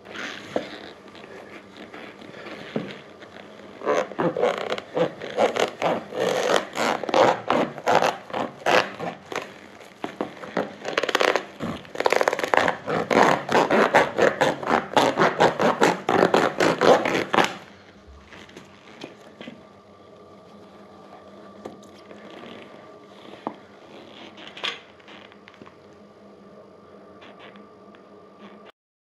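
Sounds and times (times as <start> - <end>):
hand saw rasping through rubber: 3.8 - 17.6.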